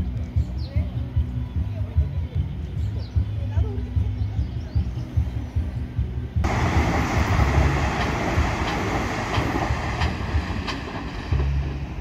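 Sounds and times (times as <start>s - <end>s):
train wheels rushing on rail: 6.4s - 12.0s
wheels clicking over rail joints: 6.5s - 12.0s.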